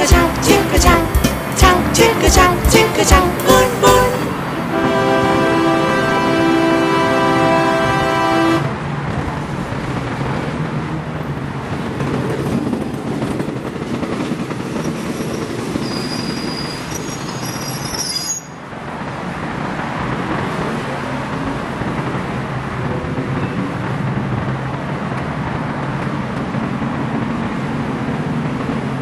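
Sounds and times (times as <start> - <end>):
train horn blowing: 0.0 - 8.8
train wheels on rails: 8.6 - 29.0
high wheel squeal: 14.8 - 18.6.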